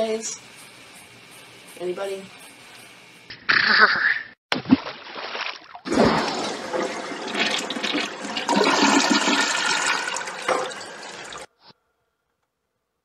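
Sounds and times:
toilet flushing: 5.8 - 11.5.

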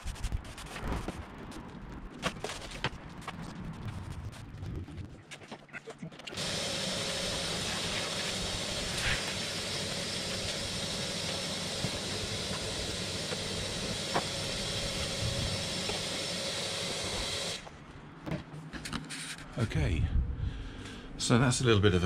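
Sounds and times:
vacuum cleaner running: 6.3 - 17.7.

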